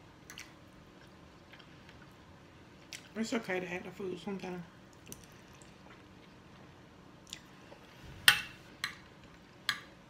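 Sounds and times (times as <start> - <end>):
quiet chewing: 0.2 - 3.2, 4.9 - 7.9.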